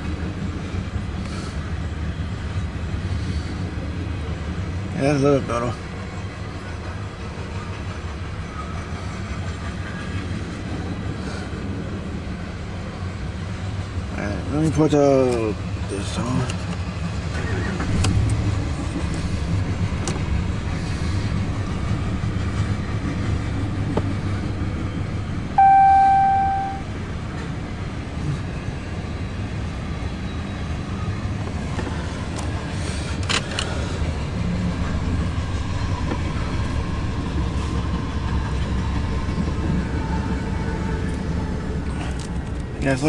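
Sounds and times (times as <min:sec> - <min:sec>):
train wheels rumbling on rail: 0:00.0 - 0:25.6, 0:26.2 - 0:43.0
single loud tone: 0:25.6 - 0:26.9.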